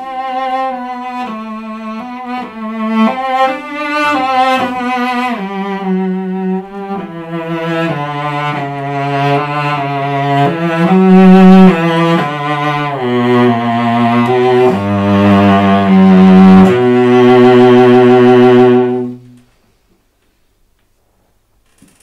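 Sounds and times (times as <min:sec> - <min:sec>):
solo cello bowed: 0:00.0 - 0:19.5.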